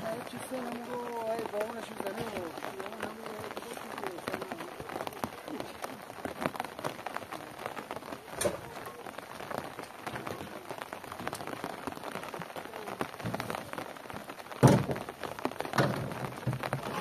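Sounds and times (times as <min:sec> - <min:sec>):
rain pattering: 0:00.0 - 0:17.0
belongings thudding into truck bed: 0:14.6 - 0:15.0.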